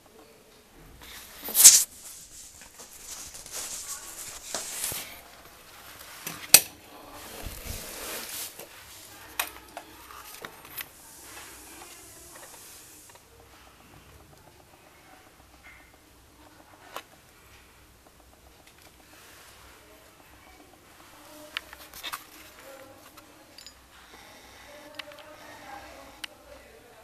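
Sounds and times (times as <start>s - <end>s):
rustling: 1.0s - 13.2s.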